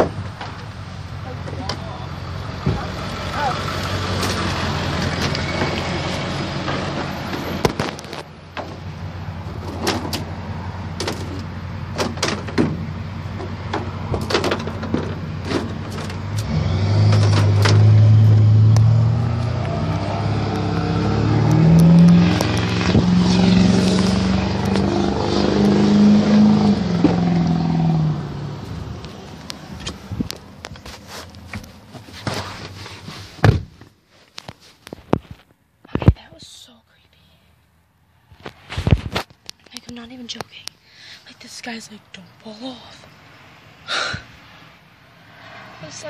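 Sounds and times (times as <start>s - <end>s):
truck engine accelerating: 0.0s - 31.5s
rustling: 29.3s - 36.0s.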